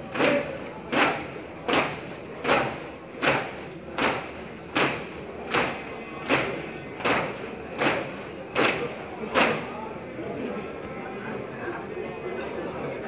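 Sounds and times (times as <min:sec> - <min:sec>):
sharp thuds of exercising squad: 0:00.1 - 0:09.7.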